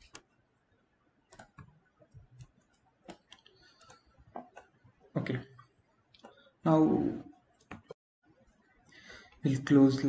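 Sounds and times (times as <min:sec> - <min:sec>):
keyboard and mouse clicks: 0:00.0 - 0:00.3, 0:01.3 - 0:04.8, 0:07.5 - 0:08.0.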